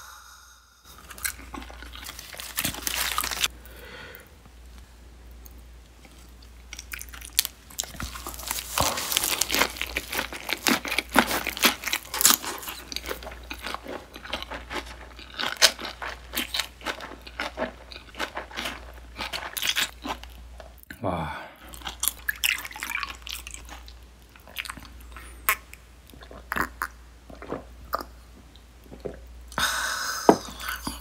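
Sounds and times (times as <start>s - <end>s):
lettuce crunching while chewing: 0.9s - 3.5s, 6.0s - 20.8s.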